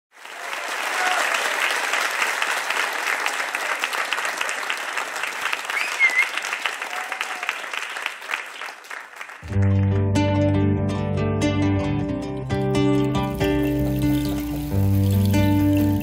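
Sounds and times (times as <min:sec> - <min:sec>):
audience applause: 0:00.1 - 0:09.8
plucked classical guitar: 0:09.5 - 0:16.0.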